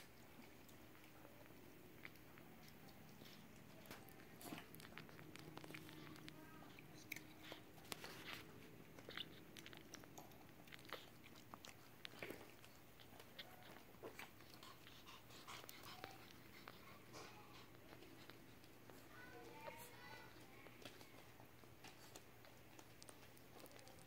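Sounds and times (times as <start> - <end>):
small clicks and crinkles: 0.0 - 24.0.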